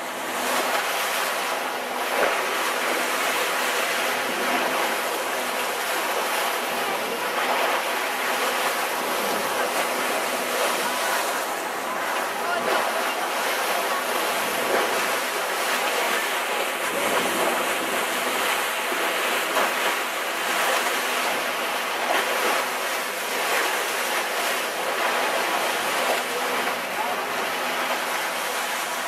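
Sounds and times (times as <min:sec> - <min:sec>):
waves rushing around a boat: 0:00.0 - 0:29.0.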